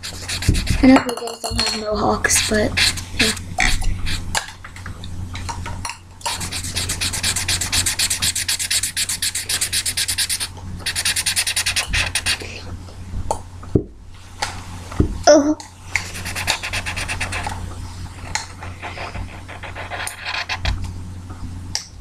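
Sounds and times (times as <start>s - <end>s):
marker scribbling on paper: 0.0s - 4.3s, 6.3s - 12.5s, 16.0s - 20.8s.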